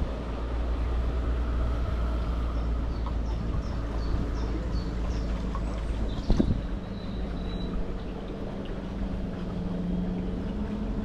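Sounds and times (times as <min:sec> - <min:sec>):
boat engine rumble: 0:00.0 - 0:11.0
wind on microphone: 0:06.0 - 0:06.8.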